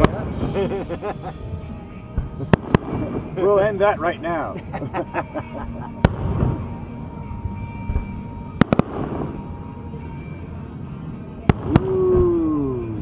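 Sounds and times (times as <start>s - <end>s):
fireworks bursting: 0.0s - 13.0s
rumbling background: 0.0s - 13.0s
falling whistle tone: 4.9s - 13.0s.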